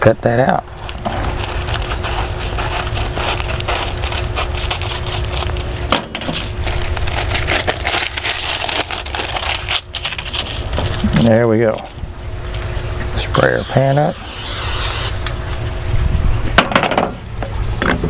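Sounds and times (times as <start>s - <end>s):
scissors cutting paper: 1.2s - 5.6s.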